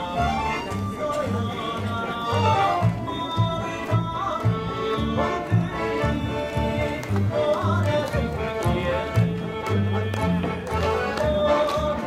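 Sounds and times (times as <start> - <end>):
man singing: 0.0 - 12.0
plucked double bass: 0.0 - 12.0.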